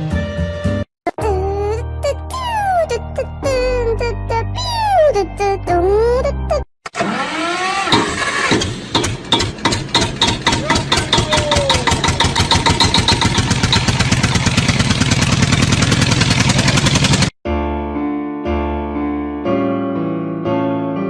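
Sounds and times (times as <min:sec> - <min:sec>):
small engine starting and running: 0:06.8 - 0:17.3.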